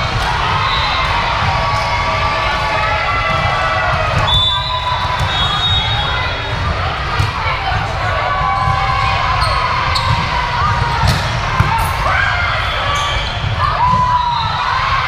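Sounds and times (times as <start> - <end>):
volleyball strikes: 0.1 - 12.1.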